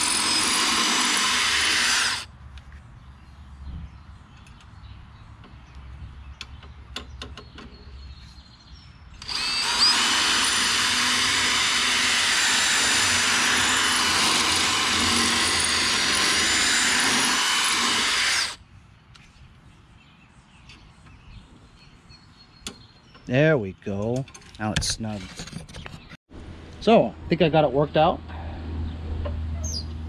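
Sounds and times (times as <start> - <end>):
cordless drill boring metal: 0.0 - 2.3, 9.2 - 18.6.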